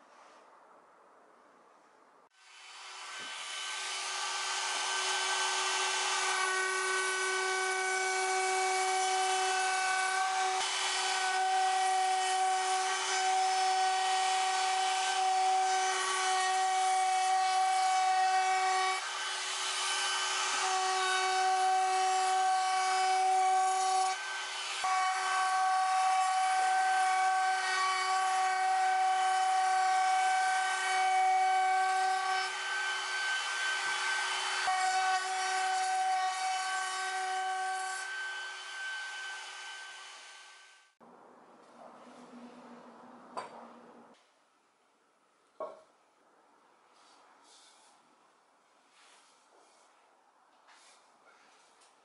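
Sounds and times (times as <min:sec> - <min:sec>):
router whining while cutting wood: 0:02.5 - 0:40.8.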